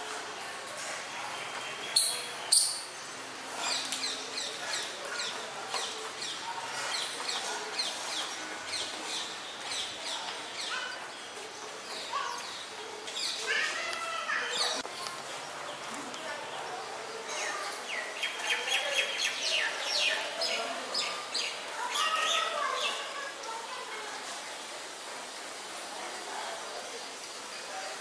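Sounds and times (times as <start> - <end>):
small birds chirping: 1.3 - 23.3.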